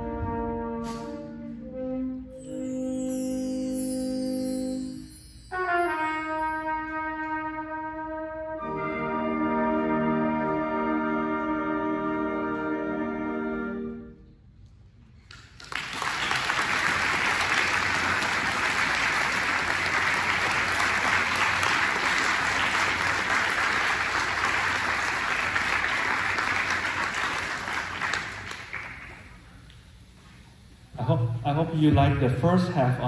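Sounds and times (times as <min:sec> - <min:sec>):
audience applause: 0:15.3 - 0:29.5.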